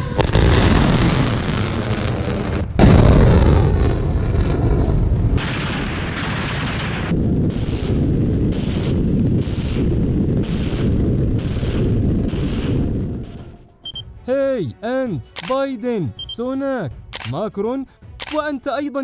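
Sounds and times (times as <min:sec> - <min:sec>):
heavy rumbling roar: 0:00.0 - 0:13.4
loud boom with long rumble: 0:00.0 - 0:13.4
rocket blasts: 0:00.0 - 0:13.4.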